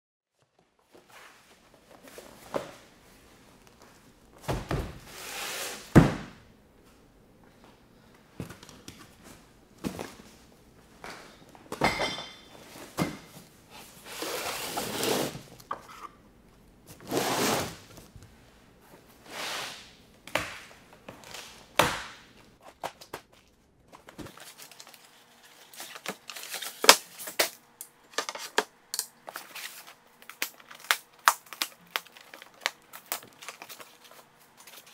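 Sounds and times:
boxes thudding on workbench: 0:05.9 - 0:06.4.

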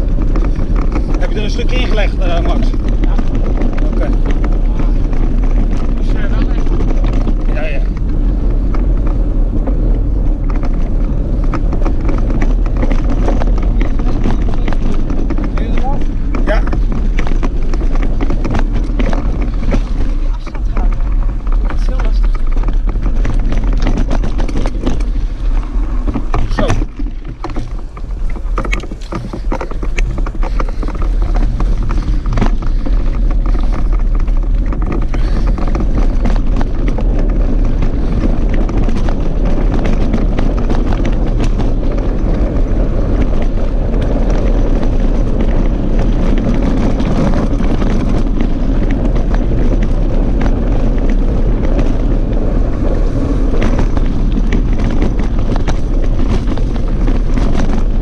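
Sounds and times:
bike clicks and rattles: 0:00.0 - 0:58.0
wind rumble on microphone: 0:00.0 - 0:58.0.

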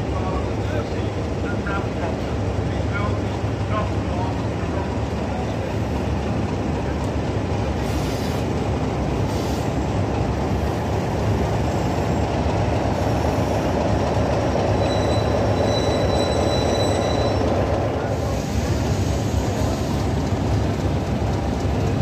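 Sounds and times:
diesel locomotive engine rumbling: 0:00.0 - 0:22.0
train wheels squealing: 0:13.0 - 0:20.1.

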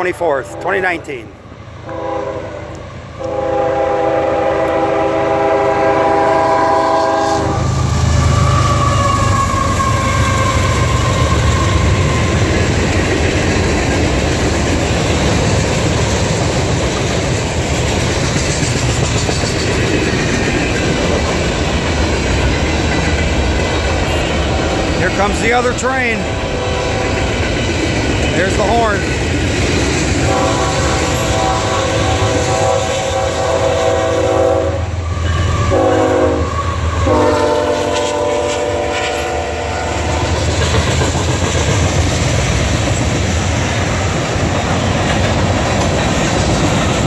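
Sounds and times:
freight train rumbling past: 0:00.0 - 0:47.0
locomotive air horn: 0:01.9 - 0:12.0, 0:30.2 - 0:40.1.

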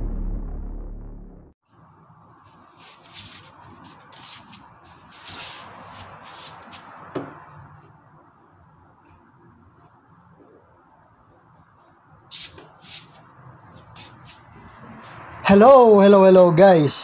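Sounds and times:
spray bottle hissing sprays: 0:02.6 - 0:06.9, 0:12.3 - 0:14.7.

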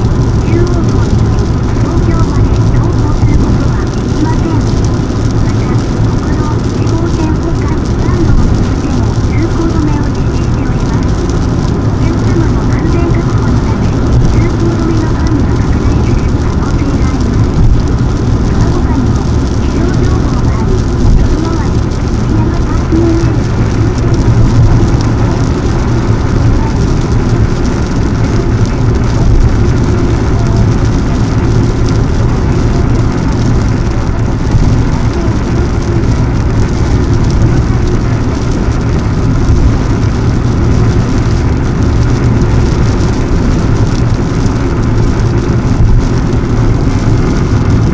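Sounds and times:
car engine: 0:00.0 - 0:47.9
rain on car: 0:00.0 - 0:47.9
tyre noise on wet road: 0:00.0 - 0:47.9.

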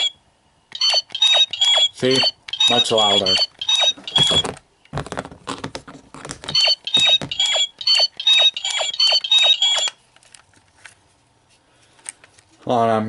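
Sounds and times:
toy electronic beeps: 0:00.0 - 0:04.5, 0:06.5 - 0:10.0.

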